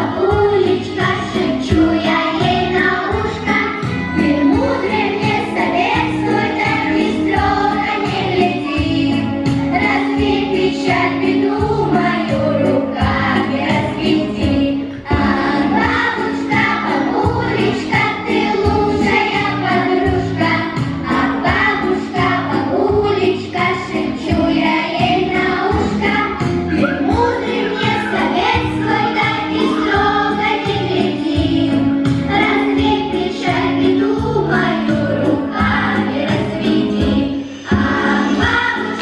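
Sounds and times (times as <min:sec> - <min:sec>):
children's choir singing: 0:00.0 - 0:39.0
instrumental accompaniment with beat: 0:09.2 - 0:13.8.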